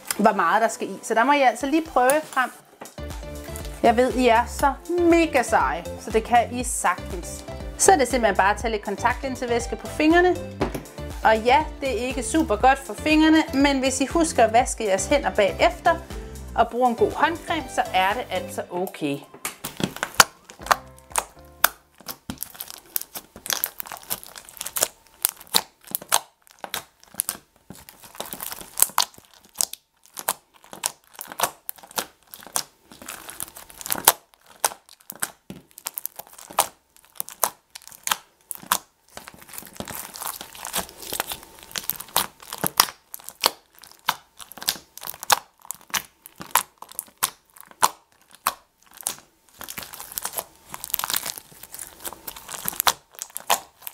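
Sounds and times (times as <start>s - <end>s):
sticky slime crackling and popping: 0.0s - 0.3s, 19.4s - 53.9s.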